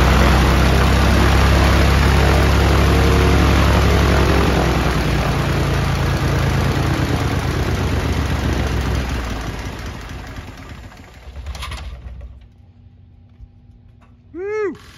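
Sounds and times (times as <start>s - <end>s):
propeller plane engine idling: 0.0s - 13.0s.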